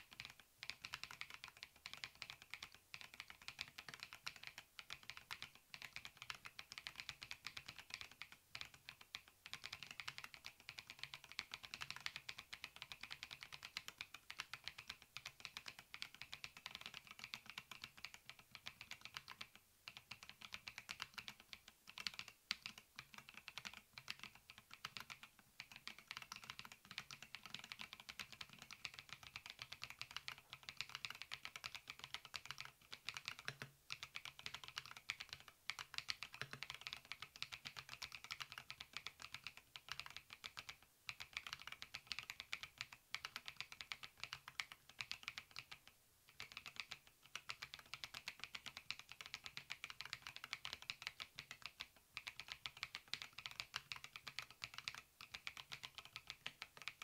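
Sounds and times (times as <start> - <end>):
fast typing on mechanical keyboard: 0.0 - 57.0.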